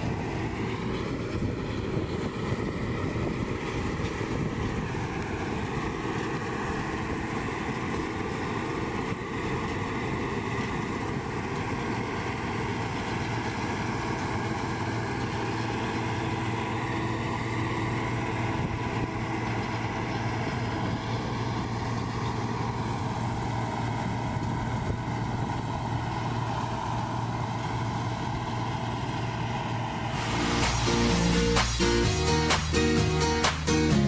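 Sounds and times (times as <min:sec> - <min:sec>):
combine harvester running: 0:00.0 - 0:34.0
music: 0:30.2 - 0:34.0.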